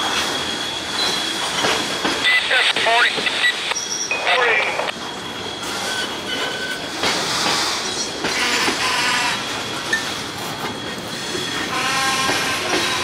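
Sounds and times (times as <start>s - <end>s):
wheel flange squeals: 0.2s - 1.9s, 5.0s - 13.0s
train wheels clattering over rail joints: 5.8s - 13.0s.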